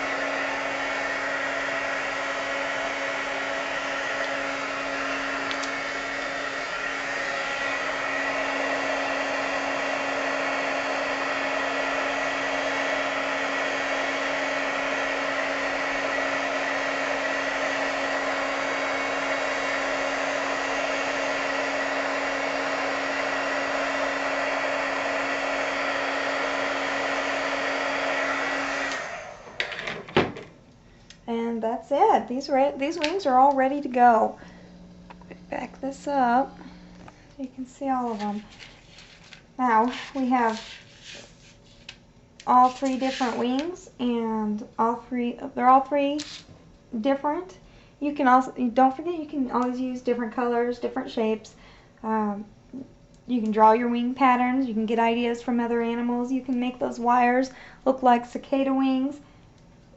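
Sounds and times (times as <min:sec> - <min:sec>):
heat gun blowing air: 0:00.0 - 0:29.6, 0:32.9 - 0:38.7, 0:39.7 - 0:41.6, 0:42.5 - 0:43.7.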